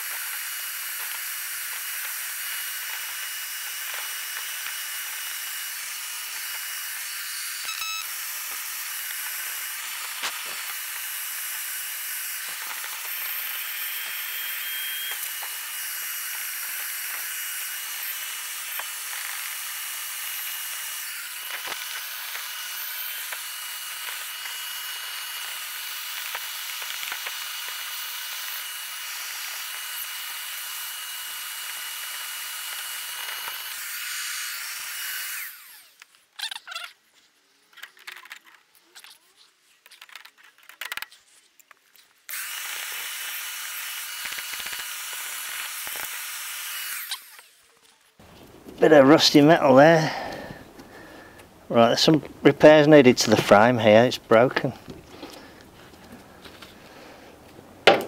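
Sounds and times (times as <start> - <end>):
shop vacuum whining: 0.0 - 36.0.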